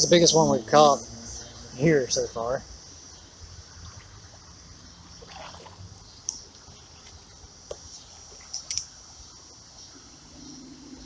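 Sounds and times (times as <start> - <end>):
creek water trickling: 0.3 - 11.0
sharp clicks: 8.5 - 9.0.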